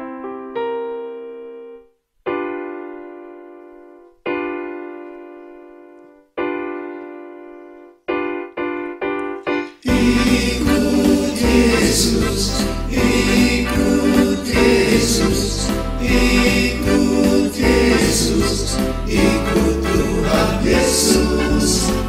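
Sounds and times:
keyboard playing hymn chords: 0.0 - 22.0
men's choir singing: 9.8 - 22.0.

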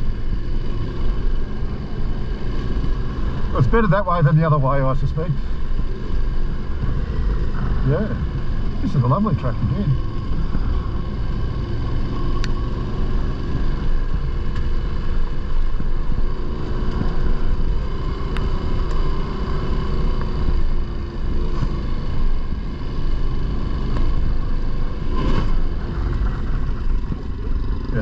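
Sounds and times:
motorcycle engine rumbling: 0.0 - 28.0
faint ticks: 14.5 - 14.7, 18.3 - 19.1.

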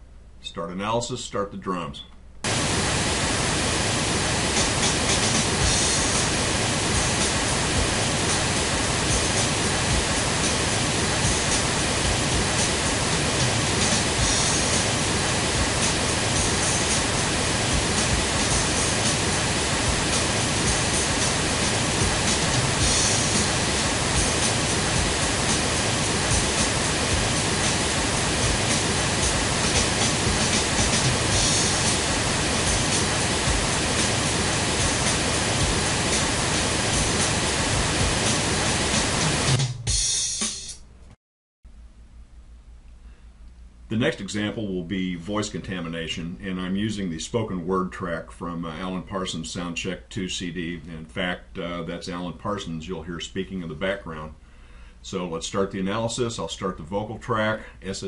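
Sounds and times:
pink noise: 2.4 - 39.6
bright hiss: 2.5 - 40.8
drum kit playing: 4.5 - 40.8.

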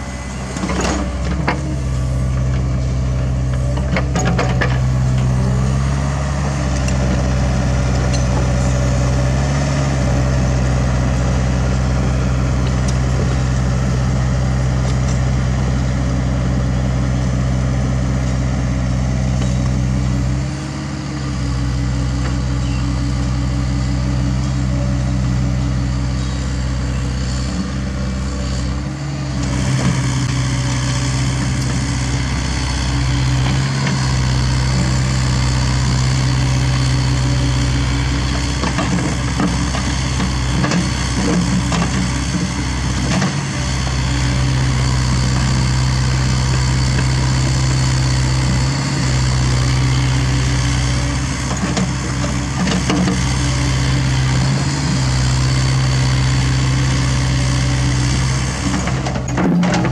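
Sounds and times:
excavator diesel engine running: 0.0 - 59.9.

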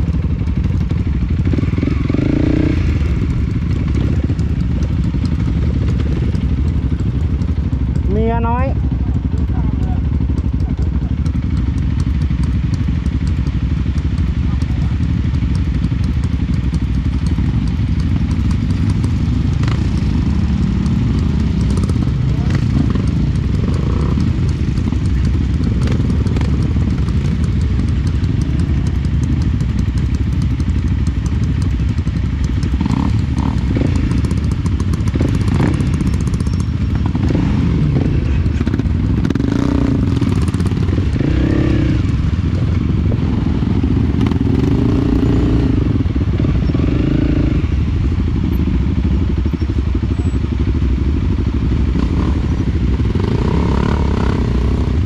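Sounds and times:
small motorcycle engine running: 0.0 - 55.0.

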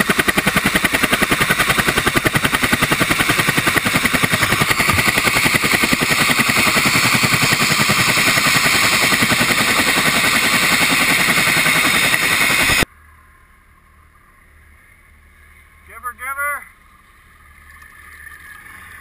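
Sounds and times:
helicopter rotor chopping: 0.0 - 12.9.

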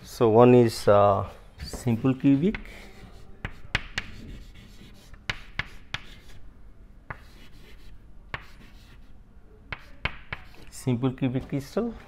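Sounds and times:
chalk scratching on blackboard: 1.8 - 6.4, 7.1 - 10.8
chalk tapping on board: 1.8 - 6.4, 7.1 - 9.0, 9.7 - 10.7.

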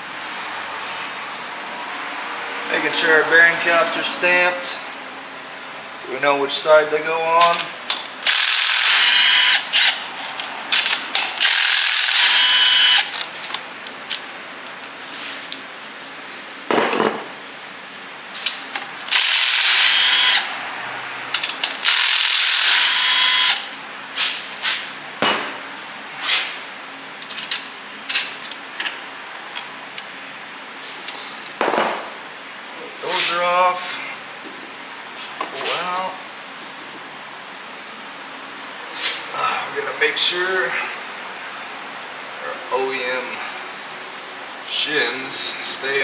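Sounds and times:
impact wrench hammering: 8.2 - 10.0, 10.8 - 13.2, 19.1 - 20.5, 21.8 - 23.7
metal parts clinking: 27.2 - 30.1.

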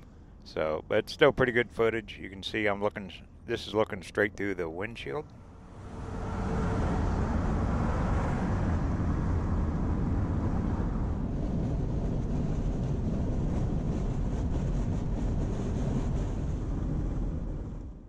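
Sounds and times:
road and wind noise in car: 5.3 - 18.0
truck passing: 5.4 - 11.2.

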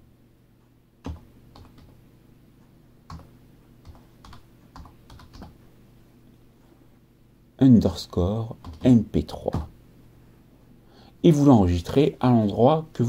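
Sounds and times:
computer keyboard typing: 1.0 - 2.0, 3.1 - 5.6, 8.6 - 9.7.

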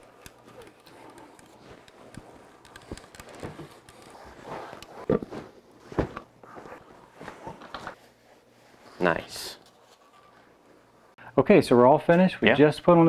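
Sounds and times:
fabric rustling: 1.6 - 9.0
cushions thumping: 5.1 - 7.6.

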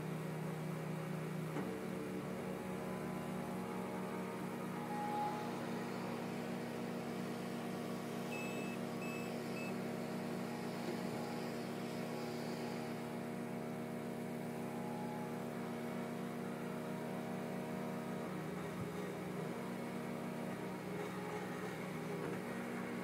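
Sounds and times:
generator engine drone: 1.9 - 23.0
short high reversing beeps: 8.3 - 9.8.

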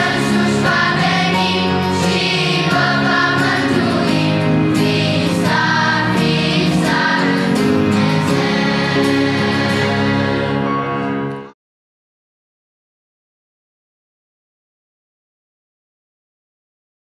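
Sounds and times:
children's choir singing: 0.0 - 11.5
instrumental accompaniment: 0.0 - 11.6.

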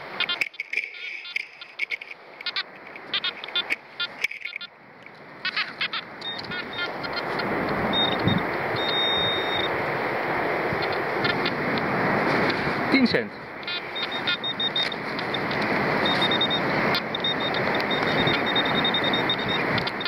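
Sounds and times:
metal detector beeps: 0.1 - 4.7, 5.4 - 9.8, 13.6 - 20.0
steady high beep: 0.2 - 2.0, 5.9 - 6.9, 7.9 - 9.7, 13.6 - 20.0.

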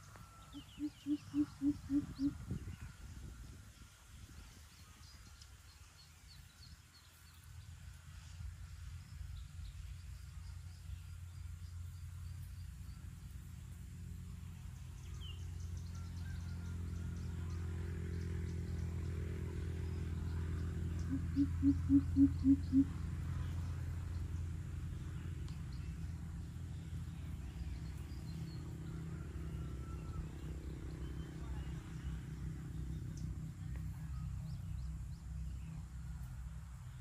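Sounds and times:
bird deep hoots: 0.5 - 2.4, 21.0 - 22.9.

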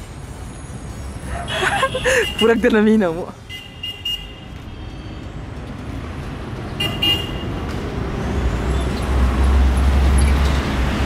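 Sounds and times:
street traffic passing: 0.0 - 11.0
car horn toots: 6.8 - 7.5.

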